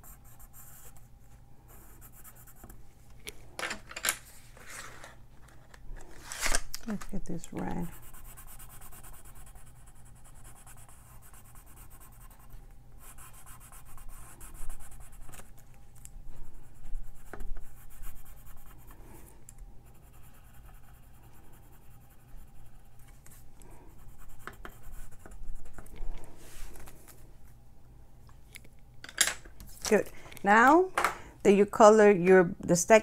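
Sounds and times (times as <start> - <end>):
pencil scratching on cardstock: 7.7 - 15.5, 19.9 - 23.0.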